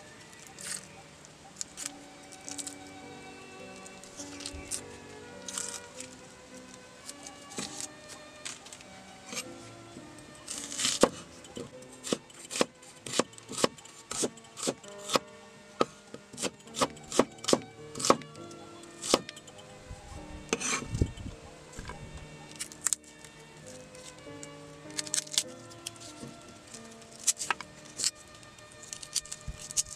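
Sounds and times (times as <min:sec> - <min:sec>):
slices scraped off board: 0:10.5 - 0:11.3, 0:12.0 - 0:18.3, 0:20.5 - 0:21.0
cleaver chopping on wooden board: 0:10.7 - 0:11.2, 0:12.0 - 0:15.2, 0:15.8 - 0:18.3, 0:19.0 - 0:19.4.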